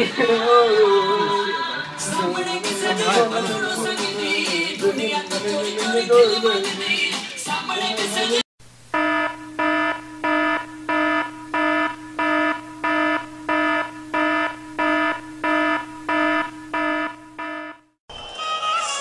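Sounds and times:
electronic alarm beeping: 0:09.0 - 0:18.3.

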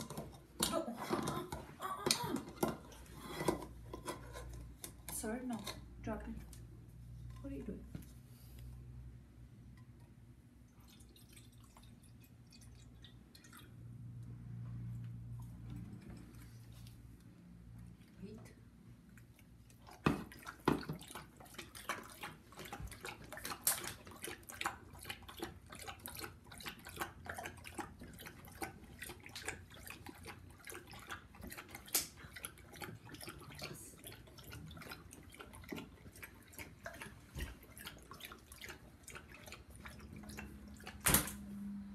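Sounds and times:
dog lapping water: 0:10.7 - 0:14.1, 0:19.0 - 0:41.7.

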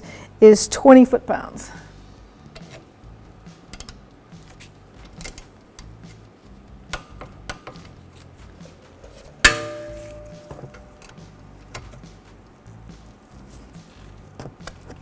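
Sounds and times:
sharp metallic click with ring: 0:09.5 - 0:11.2.

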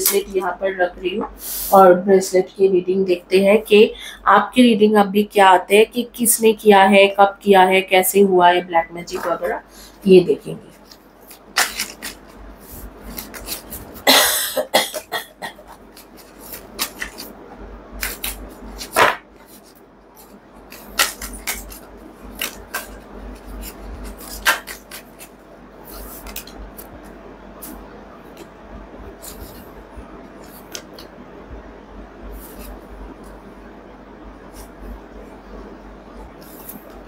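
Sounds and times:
cards being shuffled: 0:10.7 - 0:14.0, 0:15.8 - 0:17.3, 0:18.0 - 0:27.0, 0:30.4 - 0:31.1.

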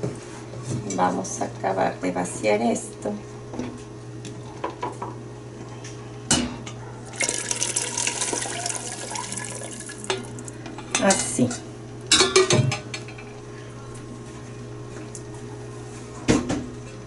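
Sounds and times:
liquid pouring through strainer: 0:07.1 - 0:10.6.

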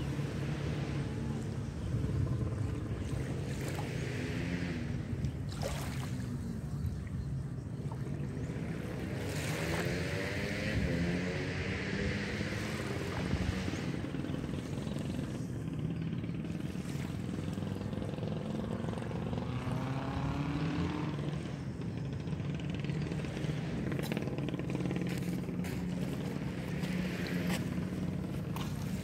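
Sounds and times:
small engine running: 0:00.0 - 0:29.0.

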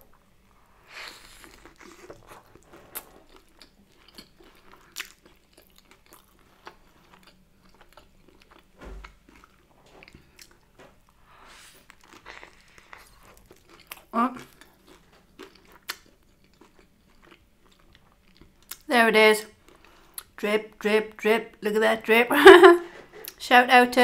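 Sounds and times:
chewing with small clicks: 0:01.4 - 0:11.2, 0:11.9 - 0:20.4.

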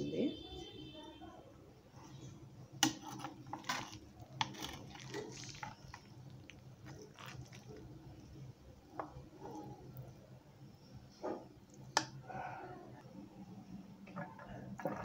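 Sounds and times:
squishy moist rice: 0:01.9 - 0:10.3.

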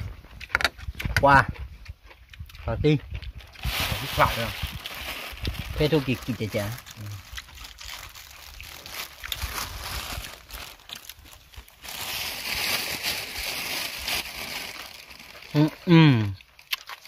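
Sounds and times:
leafy greens crunching: 0:00.0 - 0:17.0
leaves rustling: 0:03.4 - 0:15.9.

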